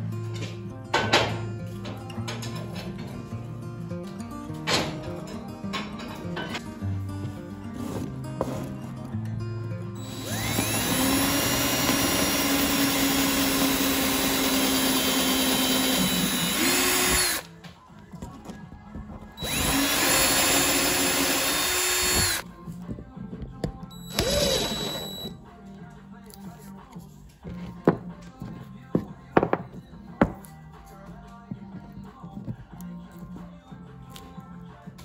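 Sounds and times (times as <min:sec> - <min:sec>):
power drill boring into wood: 0:10.0 - 0:17.4, 0:19.4 - 0:22.4, 0:24.1 - 0:25.3.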